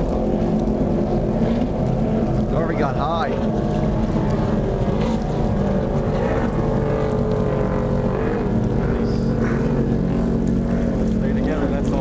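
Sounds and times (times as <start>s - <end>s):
motorboat engines droning: 0.0s - 12.0s.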